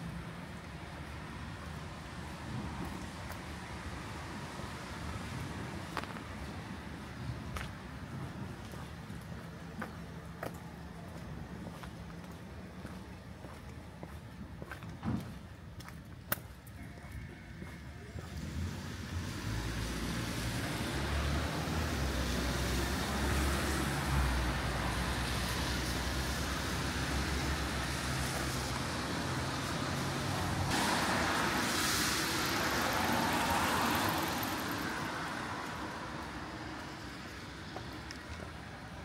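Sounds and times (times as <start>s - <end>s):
car tyres hissing on wet road: 18.7s - 37.5s.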